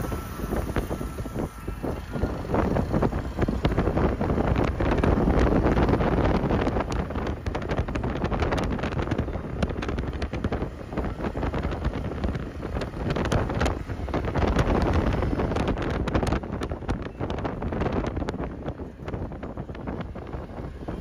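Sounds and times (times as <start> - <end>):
vehicle running noise: 0.0 - 21.0
wind buffeting microphone: 0.0 - 21.0.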